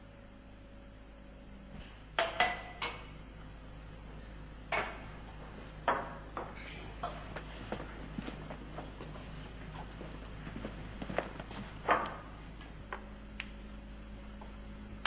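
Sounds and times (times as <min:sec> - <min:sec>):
glassware clinking: 0:06.6 - 0:07.1.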